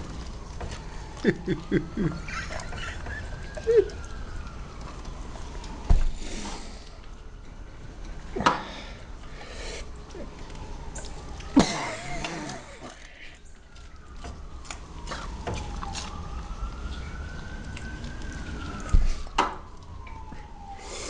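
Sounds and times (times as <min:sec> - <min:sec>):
siren wailing: 0:00.0 - 0:21.0.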